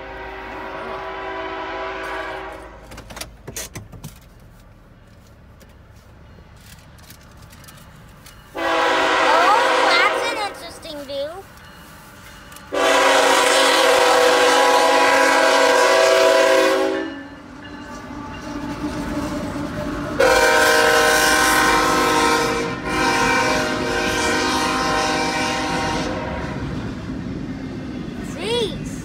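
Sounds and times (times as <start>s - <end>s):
locomotive air horn blasts: 0.0s - 2.8s, 8.5s - 10.6s, 12.7s - 17.3s, 20.2s - 26.7s
train rumble and wheel clatter: 0.0s - 29.0s.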